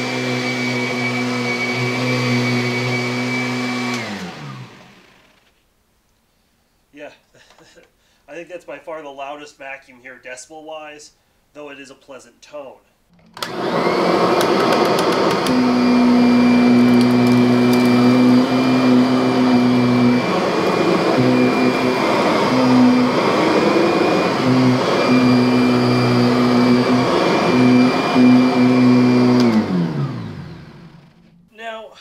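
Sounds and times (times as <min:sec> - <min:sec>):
vacuum cleaner running: 0:00.0 - 0:05.5, 0:13.3 - 0:31.4.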